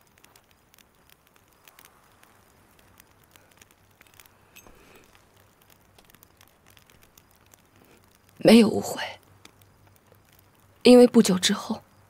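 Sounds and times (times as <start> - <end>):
faint background hiss: 0.0 - 12.0
soft clicks and crackles: 0.0 - 12.0.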